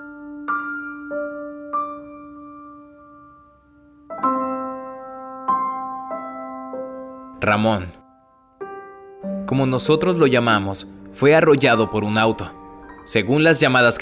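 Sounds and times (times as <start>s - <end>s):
slow solo piano: 0.0s - 7.4s, 8.0s - 13.2s.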